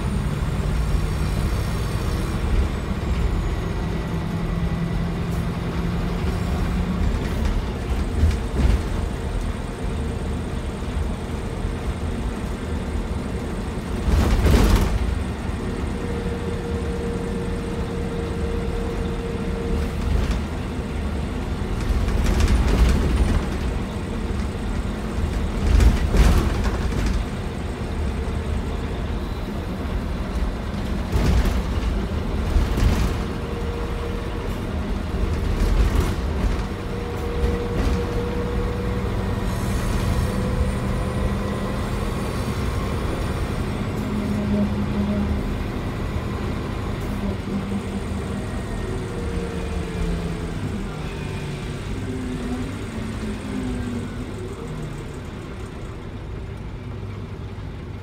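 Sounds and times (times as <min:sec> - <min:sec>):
bus engine and road noise: 0:00.0 - 0:58.0
thumps and rattles: 0:25.2 - 0:27.4, 0:30.8 - 0:33.4.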